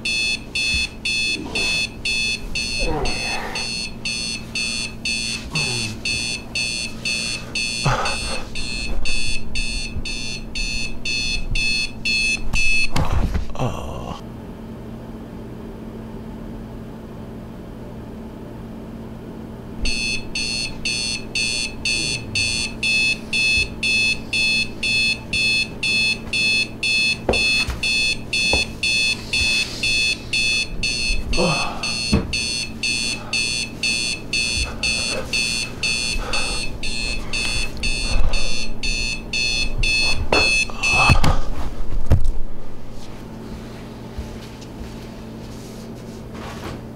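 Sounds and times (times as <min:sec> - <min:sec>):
alarm clock beeping: 0:00.0 - 0:13.0, 0:19.8 - 0:41.2
steady low hum: 0:00.0 - 0:15.2, 0:19.4 - 0:46.9.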